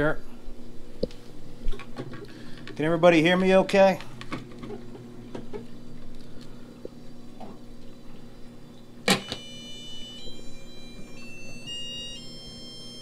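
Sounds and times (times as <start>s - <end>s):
aquarium equipment humming: 0.0s - 13.0s
electronic alert tones: 9.1s - 13.0s.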